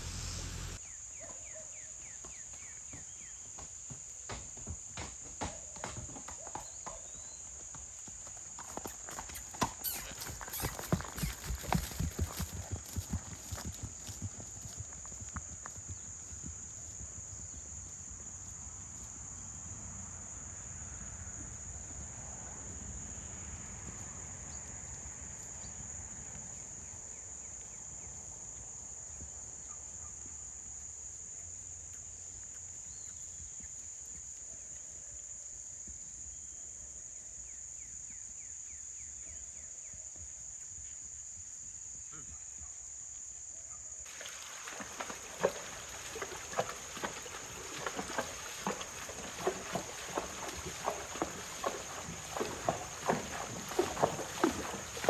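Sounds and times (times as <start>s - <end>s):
low rumble: 0.0s - 0.8s
insect chorus drone: 0.0s - 55.0s
horse hooves splashing in water: 2.2s - 17.2s, 44.1s - 55.0s.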